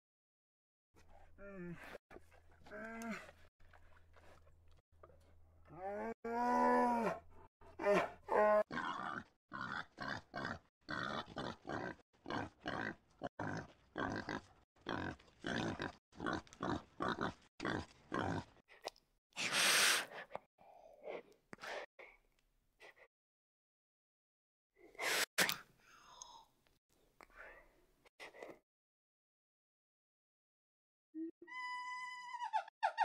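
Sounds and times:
pig grunting: 8.0s - 18.5s.

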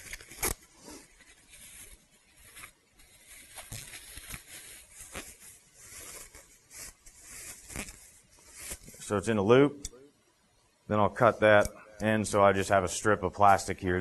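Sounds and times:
plastic bag crinkling: 0.0s - 9.1s.

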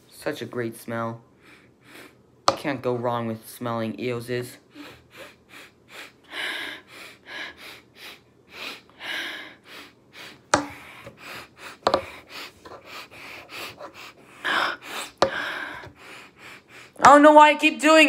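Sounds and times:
person sniffing: 1.4s - 2.2s, 4.7s - 17.0s
plastic sticks knocking on desk: 2.5s - 2.7s, 10.5s - 11.2s, 11.8s - 12.8s, 15.2s - 16.0s.

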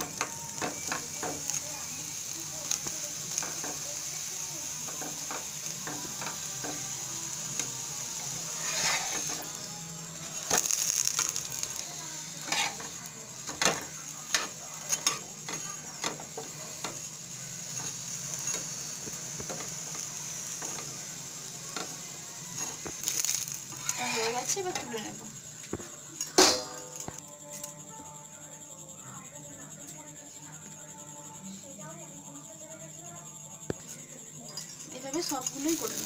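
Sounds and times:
flatbread sizzling in oil: 0.0s - 27.2s, 34.9s - 36.0s
spatula scraping and tapping pan: 8.4s - 9.6s, 10.5s - 17.0s, 22.6s - 24.9s.

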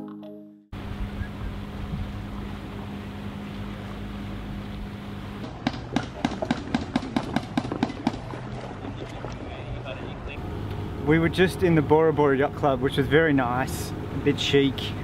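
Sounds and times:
wind noise: 0.8s - 2.5s
low hum: 0.8s - 5.5s, 10.1s - 15.0s.

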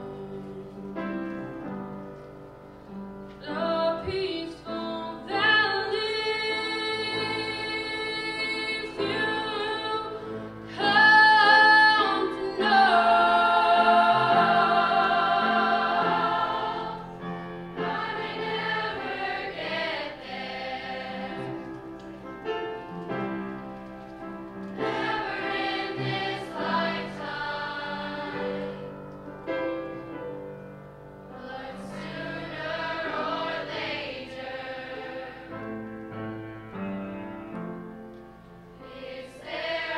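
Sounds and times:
choir singing: 4.5s - 22.3s, 24.7s - 29.2s, 31.3s - 35.9s, 38.8s - 39.9s.

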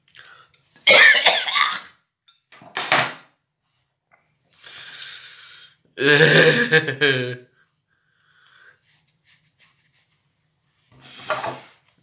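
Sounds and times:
man spluttering cough: 0.9s - 2.0s
man groaning: 6.0s - 7.4s.

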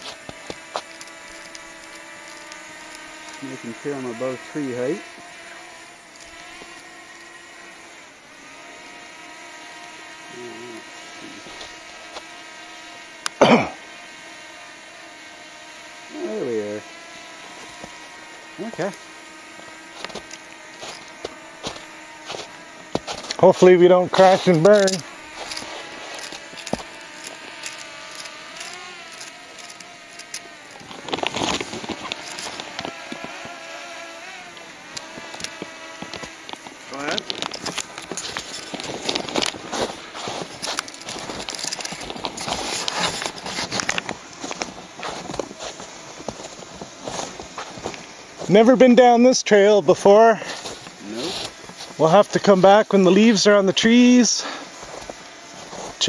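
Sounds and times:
drone propellers whining: 0.0s - 48.5s
person coughing: 13.4s - 13.8s.

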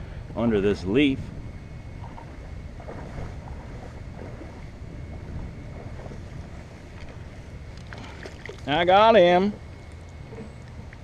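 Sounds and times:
wind rumble on microphone: 0.0s - 11.0s
stream water running: 1.6s - 11.0s
small water splashes: 5.7s - 8.8s.

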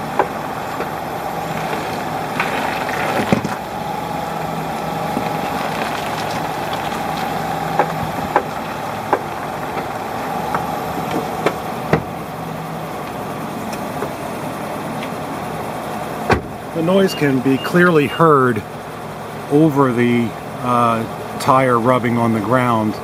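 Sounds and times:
wheel clicking and creaking: 0.0s - 12.4s
tyre and engine noise: 0.0s - 23.0s.

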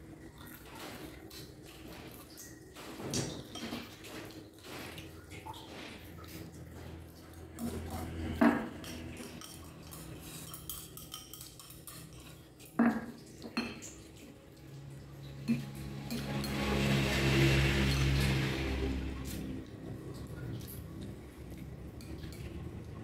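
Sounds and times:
chopsticks clinking on ceramic bowl: 8.8s - 14.2s.

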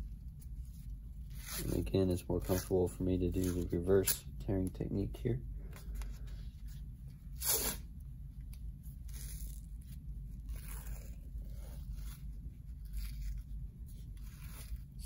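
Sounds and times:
tape tearing and rustling: 0.2s - 4.2s, 7.3s - 15.0s.

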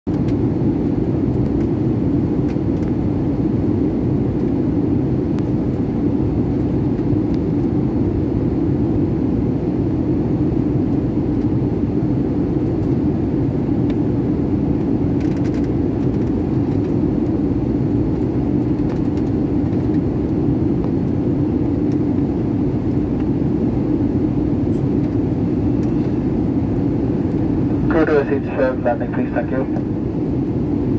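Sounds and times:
airliner cabin engine drone: 0.1s - 30.9s.

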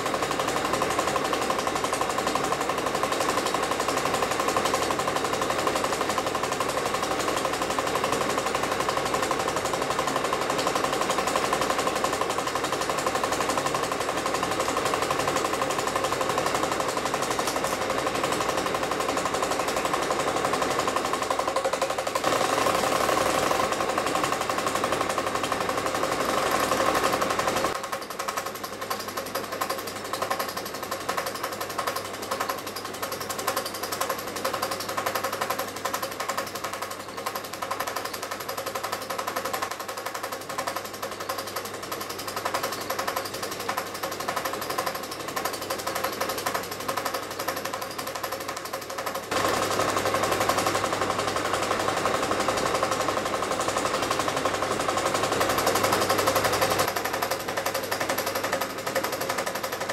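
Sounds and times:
film projector clattering: 0.0s - 59.9s.

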